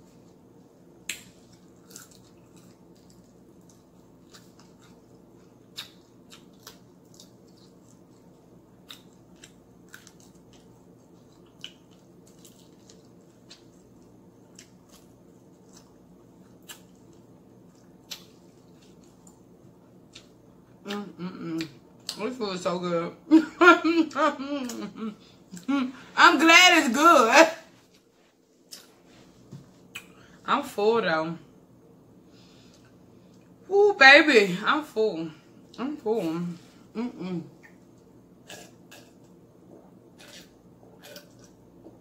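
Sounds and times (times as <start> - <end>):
steady low hum: 0.0 - 42.0
person eating fried chicken: 40.1 - 41.8.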